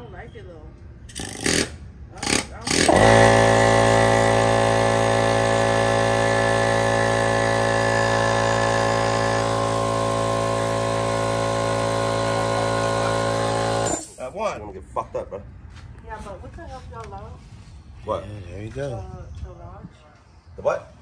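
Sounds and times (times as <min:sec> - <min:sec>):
air compressor running: 0:01.1 - 0:14.2.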